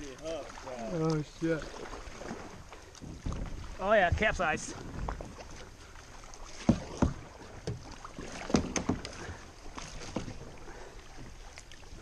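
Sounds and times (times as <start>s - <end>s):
flowing water: 0.0s - 12.0s
paddle splashing in water: 0.0s - 12.0s
paddle knocking on kayak: 6.4s - 10.6s.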